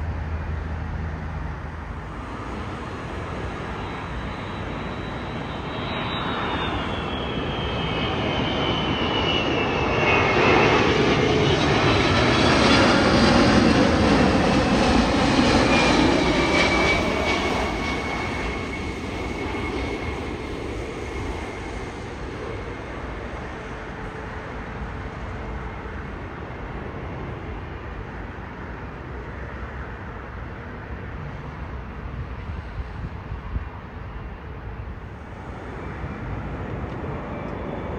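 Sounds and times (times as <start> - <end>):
jet airliner flying past: 0.0 - 37.9
high engine whine falling in pitch: 2.3 - 20.8.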